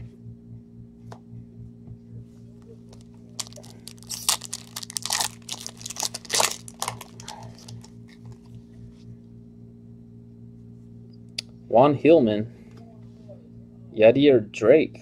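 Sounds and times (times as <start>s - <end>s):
foil wrapper tearing and crinkling: 3.4s - 8.0s.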